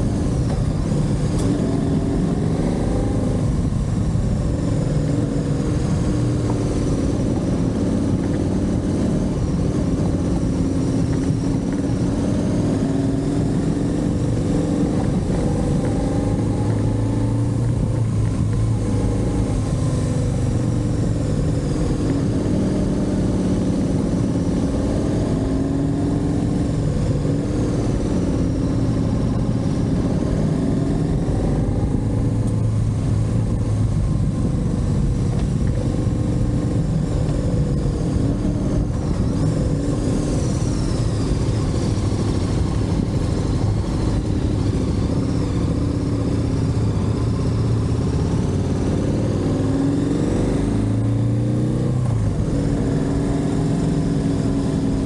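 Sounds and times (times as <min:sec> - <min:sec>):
motorcycle engine running: 0:00.0 - 0:55.0
wind and road noise: 0:00.0 - 0:55.0.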